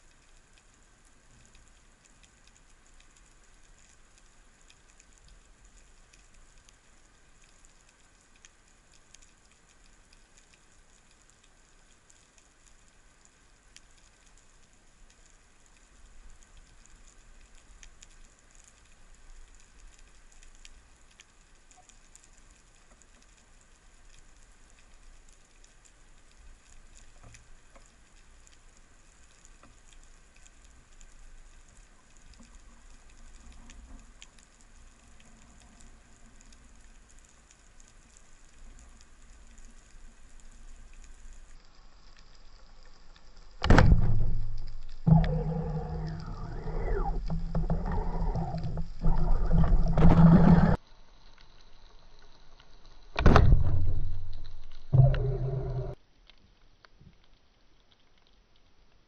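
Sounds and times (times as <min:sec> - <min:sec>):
low underwater rumble: 0:39.6 - 0:50.8, 0:52.6 - 0:56.0.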